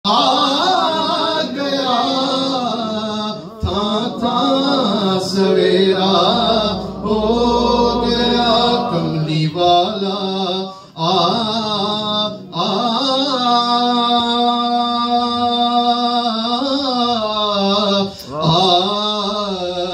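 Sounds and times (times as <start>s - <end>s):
man singing devotional poem: 0.1s - 19.9s
low drone: 3.8s - 11.6s.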